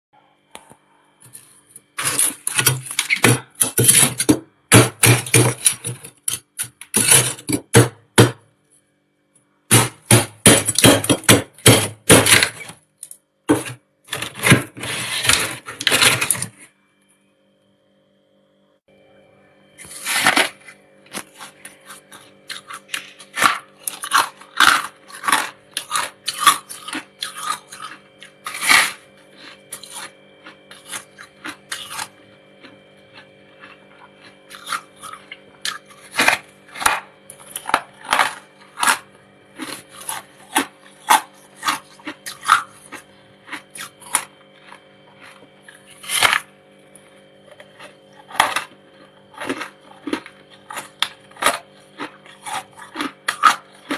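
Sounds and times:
frost being chewed: 19.8s - 46.4s, 47.0s - 53.9s.

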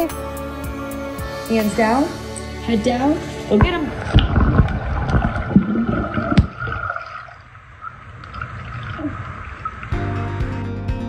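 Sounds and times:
muffled underwater splashing: 3.4s - 10.0s.

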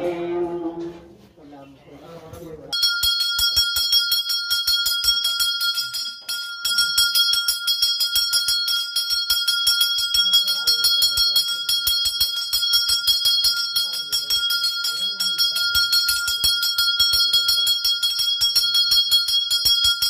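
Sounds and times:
hand bell rung rapidly: 2.7s - 20.0s
faint voices: 9.9s - 18.8s.

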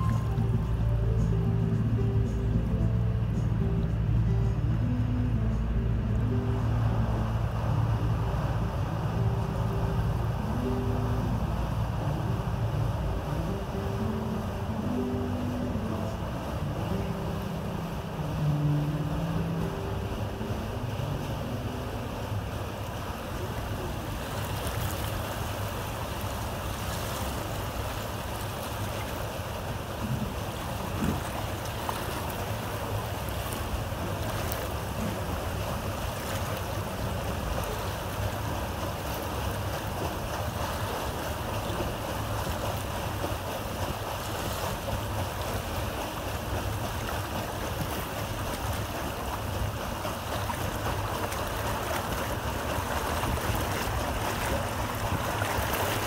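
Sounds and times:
low rumble: 0.0s - 26.8s
water churning past hull: 0.0s - 56.0s
wind buffeting microphone: 30.0s - 31.5s.

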